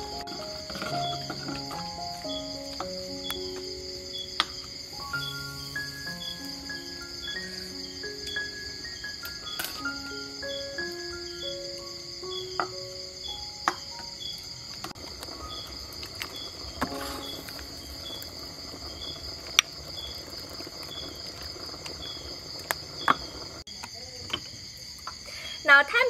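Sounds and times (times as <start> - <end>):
soft background music: 0.0 - 20.0
night insects trilling: 0.0 - 26.0.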